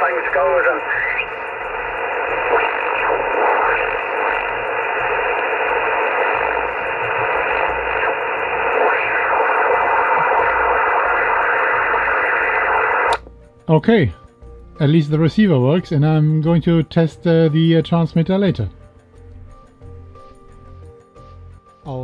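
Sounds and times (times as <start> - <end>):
radio receiver hiss and static: 0.0 - 13.2.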